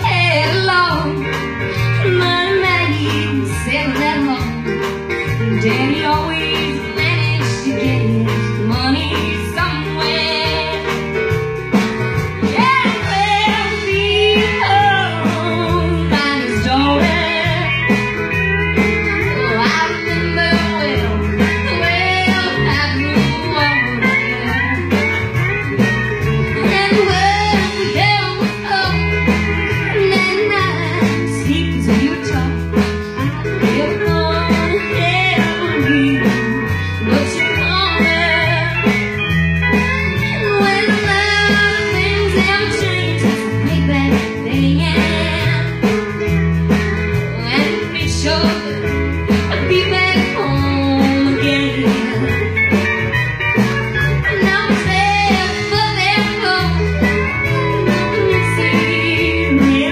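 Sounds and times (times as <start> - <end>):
live country band playing: 0.0 - 59.9
woman singing lead: 0.0 - 59.9.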